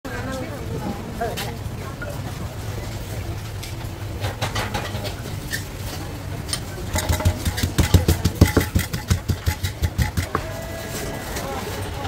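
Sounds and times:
pestle pounding in mortar: 6.9s - 10.6s.

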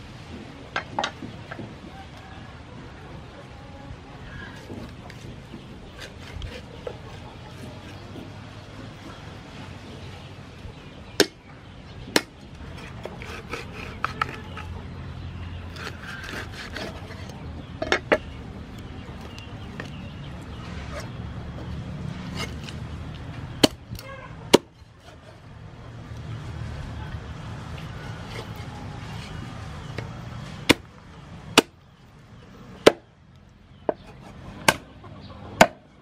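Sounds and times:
cleaver chopping on wooden board: 11.2s - 11.4s, 12.1s - 14.7s, 23.6s - 24.8s, 31.6s - 31.8s, 32.8s - 33.0s, 33.9s - 34.9s, 35.6s - 35.8s.

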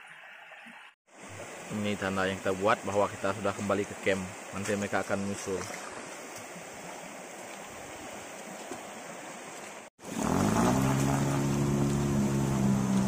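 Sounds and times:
running water and rain: 0.0s - 13.0s
boat motor running: 10.0s - 13.0s.

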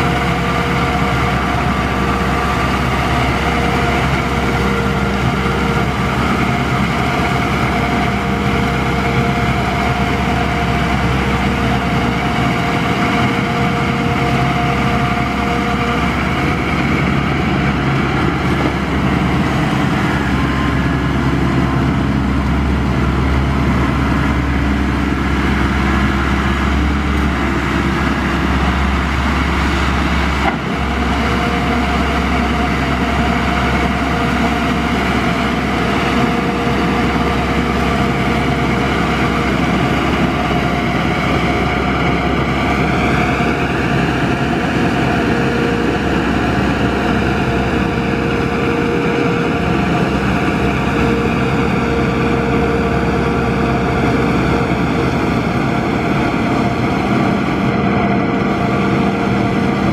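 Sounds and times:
tractor engine under load: 0.0s - 59.9s.

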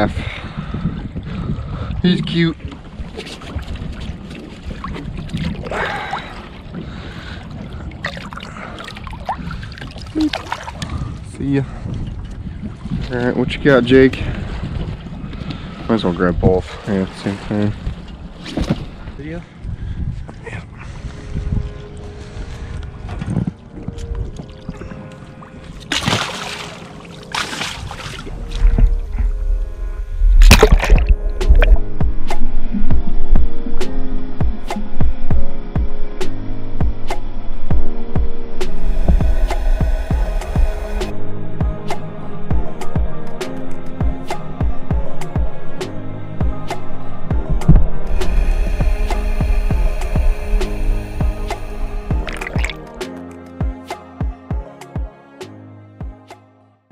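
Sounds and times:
wind buffeting microphone: 0.0s - 26.0s, 27.6s - 33.7s
water splashing against boat: 0.0s - 32.4s, 46.4s - 53.1s
music: 20.6s - 56.9s
fish splashing into water: 25.9s - 28.9s, 30.4s - 31.8s, 52.2s - 53.0s.

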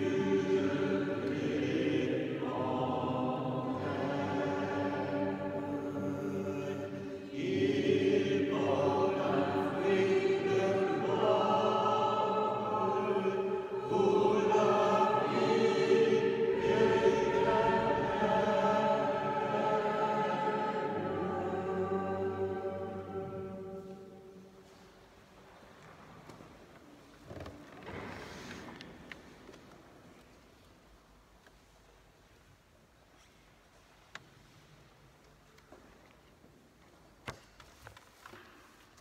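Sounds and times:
choir singing slow chant: 0.0s - 24.7s.

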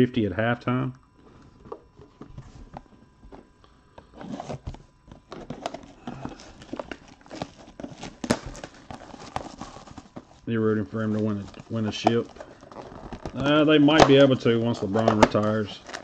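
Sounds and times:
cardboard boxes handled on table: 1.3s - 3.5s, 4.1s - 10.4s.

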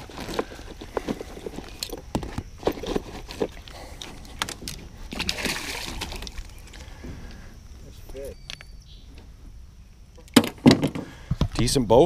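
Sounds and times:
fish splashing at surface: 5.1s - 6.4s.

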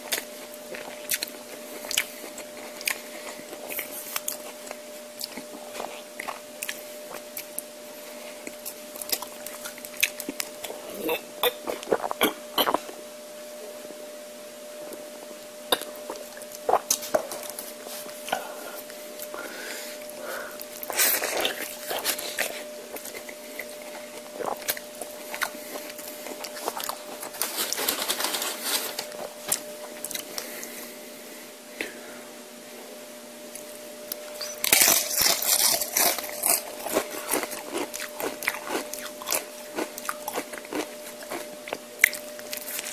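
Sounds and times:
faint steady hum: 0.0s - 42.9s
person chewing with mouth clicks: 0.1s - 7.7s, 8.4s - 13.0s, 14.8s - 27.3s, 29.1s - 30.7s, 33.5s - 42.9s
crunching chips: 20.6s - 30.7s, 34.1s - 42.9s
crinkly crackling: 20.8s - 30.7s, 34.2s - 41.5s.

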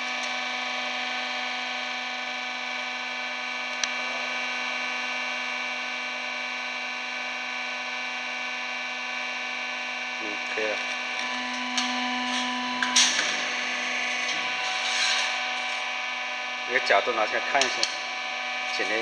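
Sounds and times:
pump motor humming: 10.4s - 16.5s.

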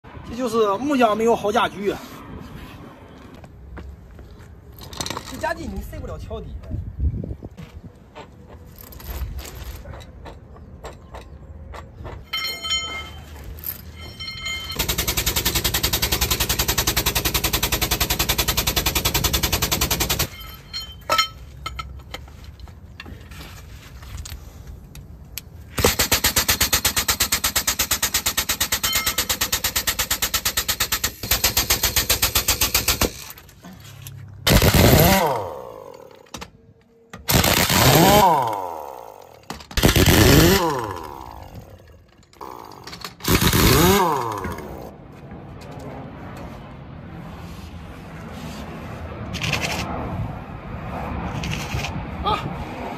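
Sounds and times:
pneumatic tool rattling: 25.7s - 33.6s, 34.5s - 36.4s, 37.2s - 44.9s
impact wrench whining: 37.2s - 44.9s.

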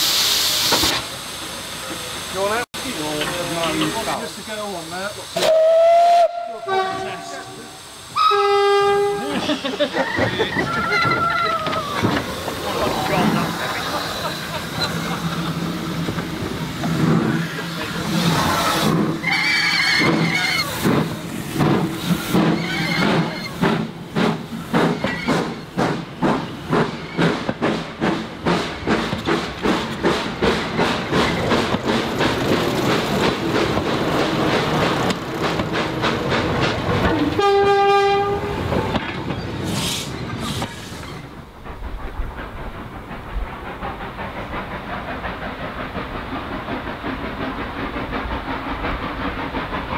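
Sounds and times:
steam train passing: 0.0s - 49.9s
train whistle blast: 5.4s - 9.3s, 37.4s - 38.5s.

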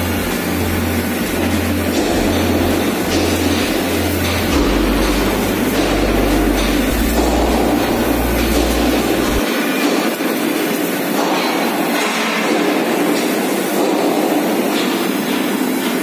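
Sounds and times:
low electrical hum: 0.0s - 9.9s.

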